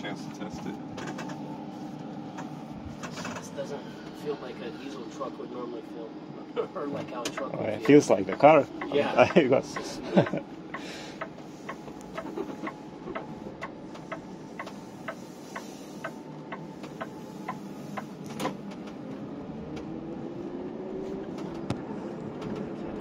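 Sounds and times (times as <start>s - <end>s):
road and drivetrain noise: 0.0s - 23.0s
steady ticking: 7.3s - 17.1s.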